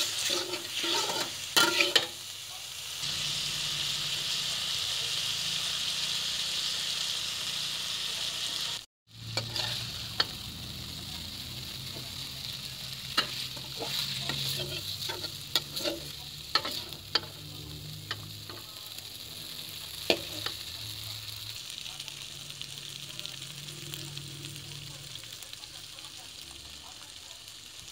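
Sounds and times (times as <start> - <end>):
spatula scraping wok: 0.0 - 2.3, 3.0 - 21.6
noodles sizzling in a wok: 0.0 - 27.9.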